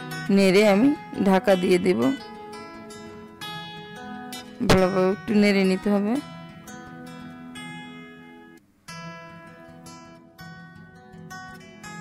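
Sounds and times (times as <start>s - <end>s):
solo acoustic guitar plucking: 0.0s - 12.0s.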